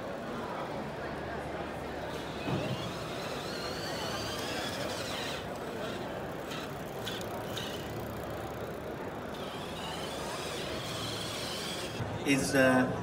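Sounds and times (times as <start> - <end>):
electric motor whine: 2.2 - 8.2, 9.0 - 12.0.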